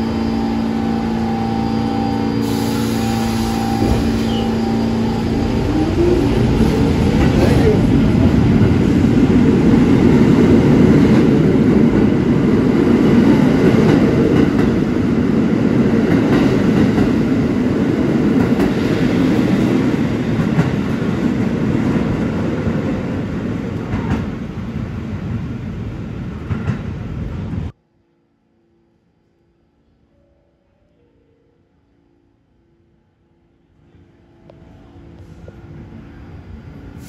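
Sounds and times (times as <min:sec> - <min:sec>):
subway train wheels rumbling: 0:00.0 - 0:37.0.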